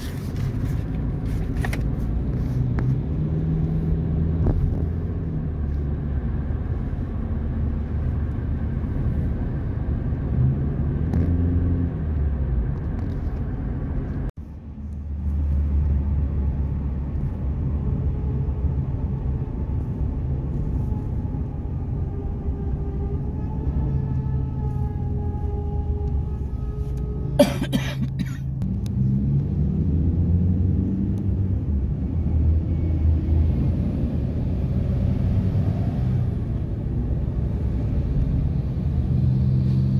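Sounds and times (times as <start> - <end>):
car cabin road and engine rumble: 0.0 - 39.9.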